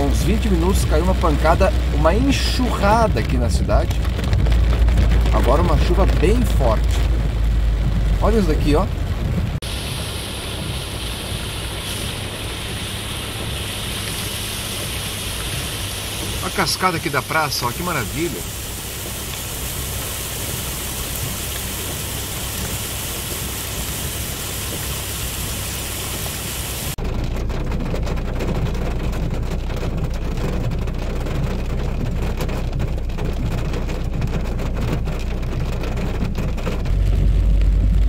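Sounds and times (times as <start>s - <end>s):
rain rumble inside car: 0.0s - 38.0s
rainwater pouring down steps: 0.0s - 38.0s
raindrops ticking on glass: 0.1s - 8.2s, 27.0s - 38.0s.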